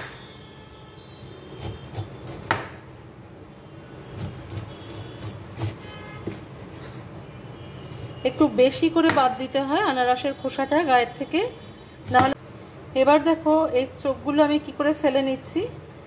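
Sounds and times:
knife scraping through pineapple skin: 1.2 - 2.5, 4.0 - 7.2.

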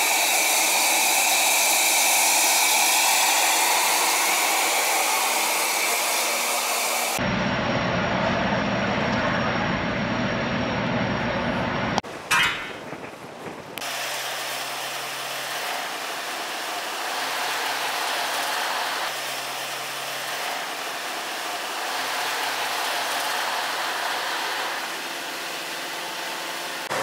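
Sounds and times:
machine rushing hiss: 0.0 - 7.2.

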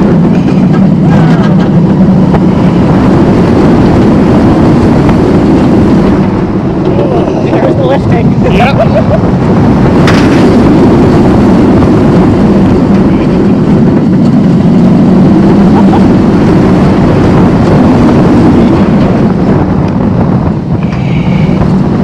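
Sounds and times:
roller coaster rumbling on track: 0.0 - 22.0
wind rushing on microphone: 0.0 - 22.0.

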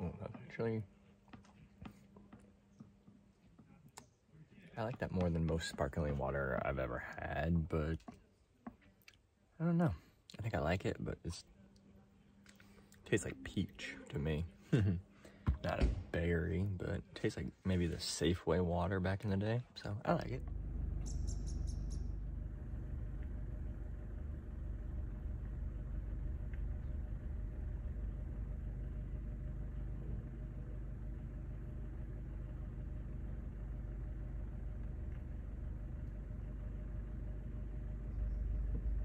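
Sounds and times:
low rumble: 20.2 - 39.0.

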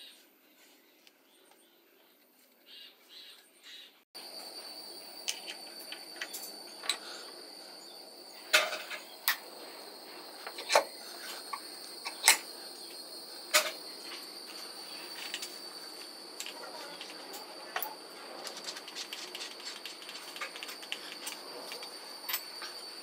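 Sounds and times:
high-pitched insect trill: 4.2 - 23.0.

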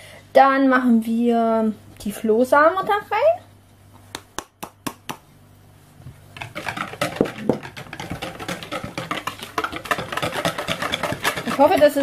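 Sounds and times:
whisk beating eggs in a bowl: 6.3 - 12.0.

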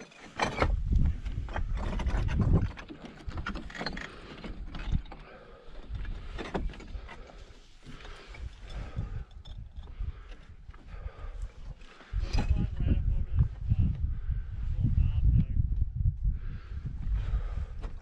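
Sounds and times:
wind rumble on microphone: 0.4 - 3.7, 8.2 - 18.0.

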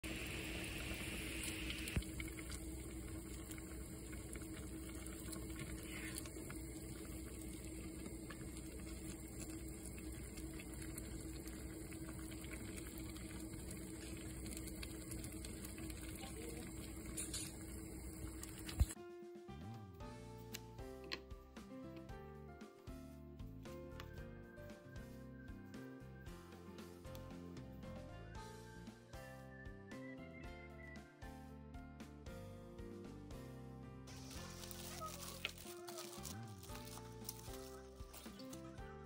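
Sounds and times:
faint steady hum: 0.0 - 19.0
soup boiling and bubbling: 0.0 - 19.0, 34.1 - 39.0.

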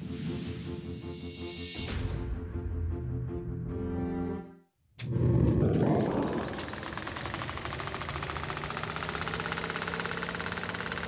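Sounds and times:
machine clattering: 5.6 - 11.0.

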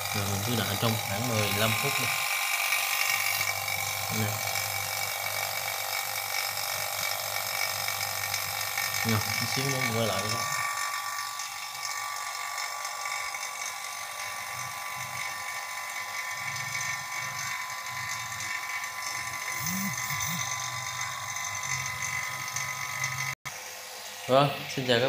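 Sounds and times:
vacuum pump running: 0.0 - 25.0.

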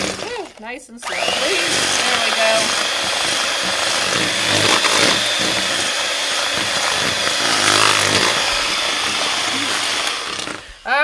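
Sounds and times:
electric hand mixer running: 0.0 - 11.0.

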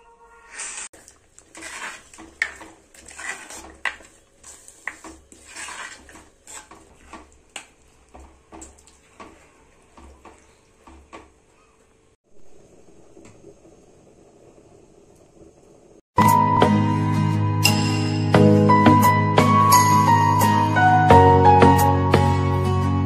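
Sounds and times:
wooden spoon stirring in pot: 0.9 - 12.2.

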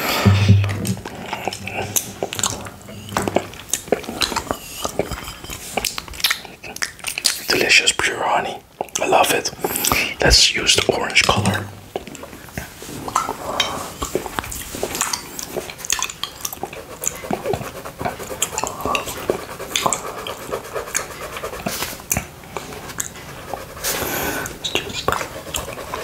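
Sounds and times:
wet licking and lip smacks: 3.4 - 7.6, 18.4 - 25.8.

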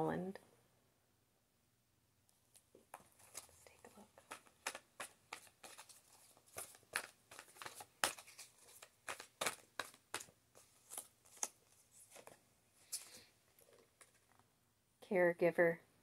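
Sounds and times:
cards being shuffled by hand: 2.5 - 14.4.

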